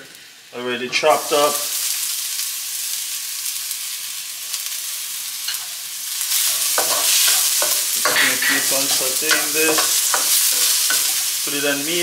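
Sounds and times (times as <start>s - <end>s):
onion sizzling in oil: 0.0s - 12.0s
wooden spatula stirring: 6.4s - 11.4s.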